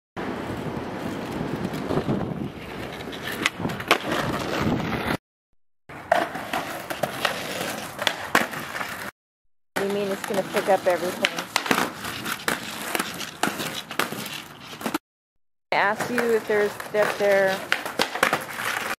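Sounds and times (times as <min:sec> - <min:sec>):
skateboard wheels rolling on asphalt: 0:00.2 - 0:05.2, 0:05.9 - 0:09.1, 0:09.8 - 0:15.0, 0:15.8 - 0:19.0
skateboard clacking on ground: 0:06.0 - 0:09.1, 0:09.8 - 0:15.0, 0:15.8 - 0:19.0.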